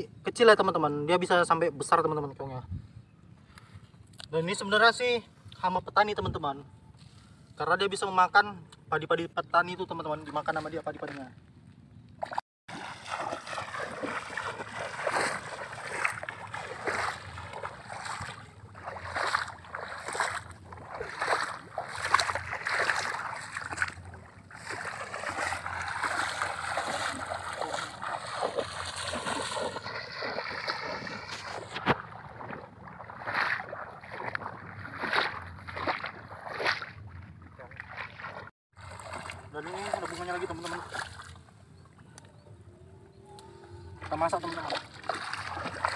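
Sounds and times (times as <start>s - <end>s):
legs wading through water: 12.2s - 42.0s, 43.3s - 45.9s.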